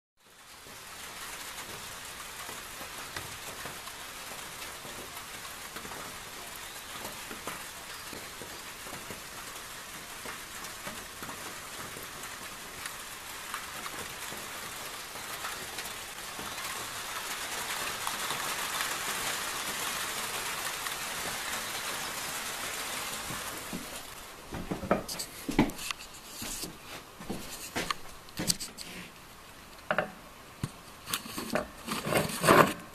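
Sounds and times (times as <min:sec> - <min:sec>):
steady rain falling: 0:00.2 - 0:32.9
sharp irregular knocks and rubbing: 0:24.6 - 0:29.1, 0:29.9 - 0:32.9.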